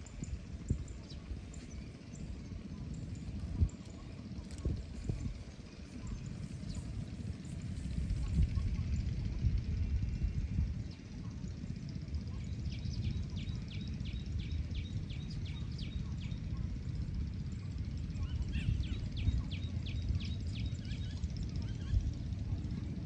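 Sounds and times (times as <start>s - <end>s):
wind rumble on microphone: 0.0s - 23.0s
bird chirping: 17.5s - 22.1s.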